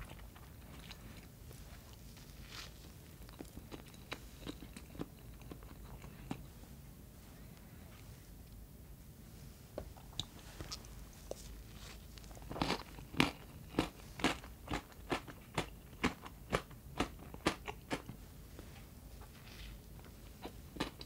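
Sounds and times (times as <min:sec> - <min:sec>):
crunchy chewing: 0:00.0 - 0:06.5, 0:10.1 - 0:18.2.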